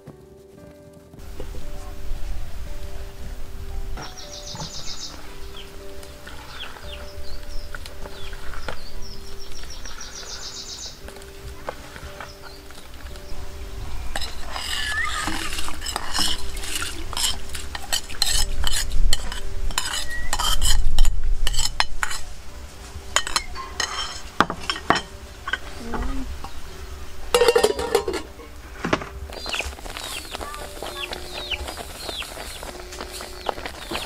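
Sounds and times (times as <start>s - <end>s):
metal ladle scraping ceramic bowl: 14.1s - 22.2s, 23.2s - 25.7s, 27.3s - 28.3s
pot lid clattering: 14.2s - 22.2s, 23.2s - 25.7s, 27.3s - 30.0s.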